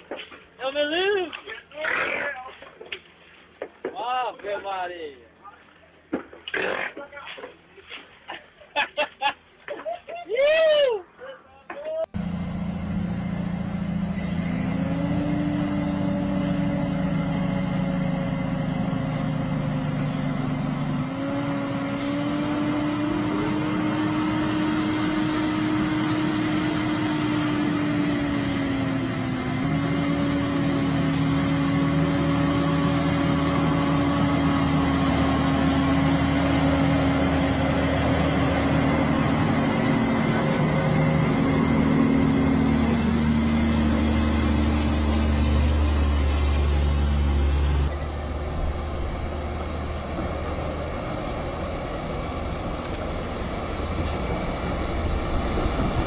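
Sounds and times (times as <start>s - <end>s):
diesel truck engine labouring uphill: 12.0s - 56.0s.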